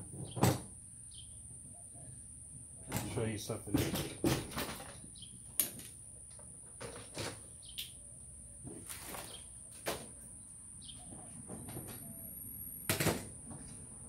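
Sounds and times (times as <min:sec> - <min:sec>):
objects knocking and rustling: 0:02.9 - 0:07.5.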